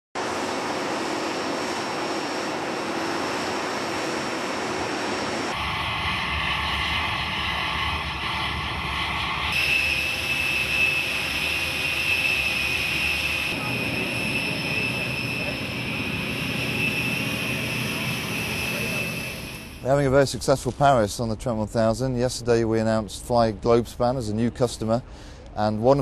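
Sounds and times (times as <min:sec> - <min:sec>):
jet aircraft rush and whine: 0:00.2 - 0:20.0.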